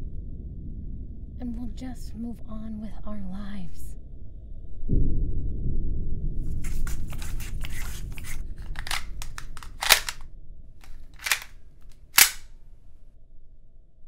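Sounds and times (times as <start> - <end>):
pistol clicks: 6.8 - 10.2, 10.8 - 12.5
pistol shots cracking: 8.2 - 10.2, 10.8 - 12.5.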